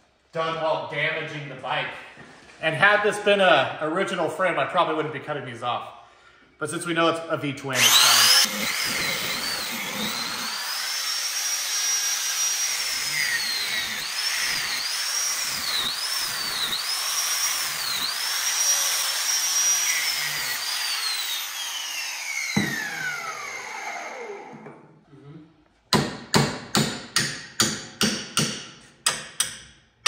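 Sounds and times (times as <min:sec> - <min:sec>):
angle grinder cutting metal: 0:07.7 - 0:24.5
knock: 0:22.5 - 0:22.8.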